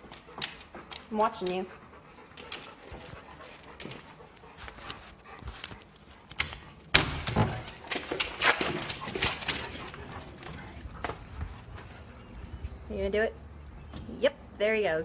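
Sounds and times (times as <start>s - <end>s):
dogs scuffling: 7.2s - 13.2s.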